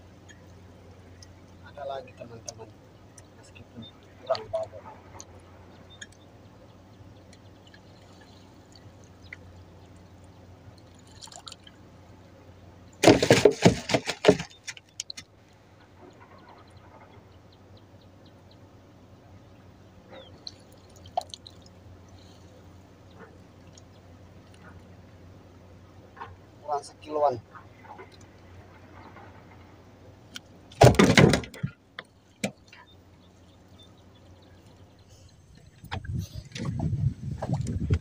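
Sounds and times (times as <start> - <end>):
low steady hum: 0.0 - 38.0
faint water drips: 0.1 - 13.0, 20.1 - 26.6
fish splashing in water: 7.3 - 12.0, 13.0 - 16.8, 20.2 - 22.6.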